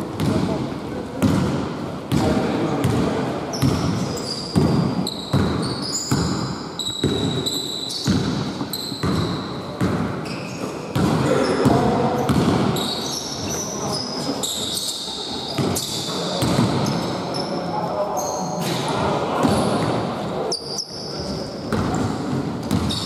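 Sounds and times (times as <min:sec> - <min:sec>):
basketball bouncing on wooden floor: 0:00.1 - 0:00.6, 0:01.2 - 0:12.7, 0:15.6 - 0:17.0, 0:21.7 - 0:23.0
sneaker squeaks: 0:02.8 - 0:23.0.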